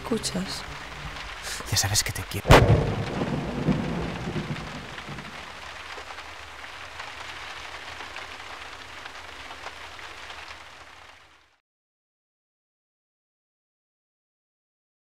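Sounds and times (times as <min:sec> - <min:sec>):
low rumble: 0:00.0 - 0:05.8
dense crackling hiss: 0:00.0 - 0:11.6.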